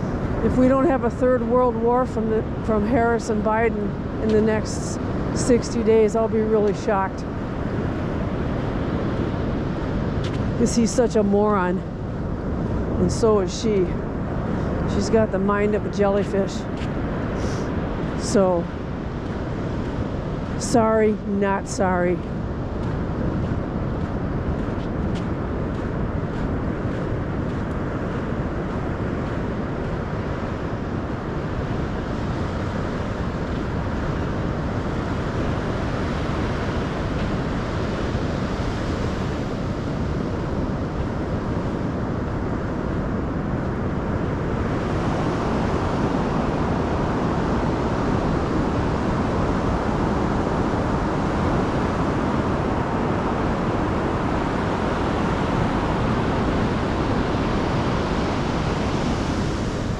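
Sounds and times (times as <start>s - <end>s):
ocean surf rushing: 0.0s - 59.9s
wind buffeting microphone: 0.0s - 59.9s.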